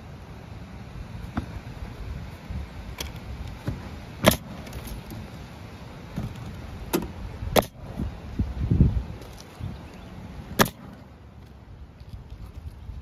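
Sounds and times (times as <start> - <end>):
low steady rumble: 0.0 - 13.0
pneumatic nailer shots: 4.2 - 4.9, 6.9 - 7.8, 10.6 - 11.0.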